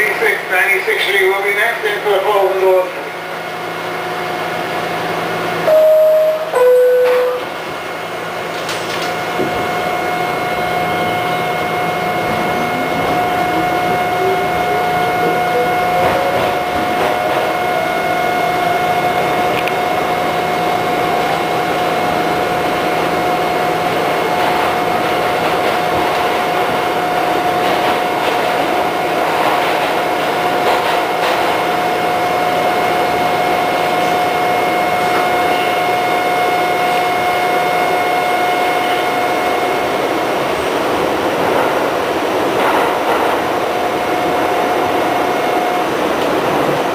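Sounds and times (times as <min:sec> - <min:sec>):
rumble of wheels on rail: 0:00.0 - 0:46.9
train traction motors whining: 0:00.1 - 0:46.9.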